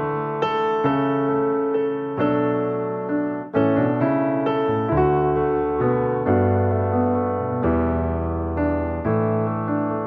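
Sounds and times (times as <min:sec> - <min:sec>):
sustained piano chords: 0:00.0 - 0:10.0.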